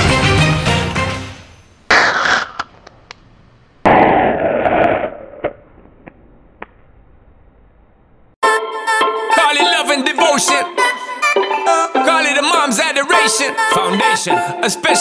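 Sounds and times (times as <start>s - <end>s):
miniature cannon firing: 1.9s - 2.9s, 3.9s - 6.7s
sharp pops: 1.9s - 7.0s.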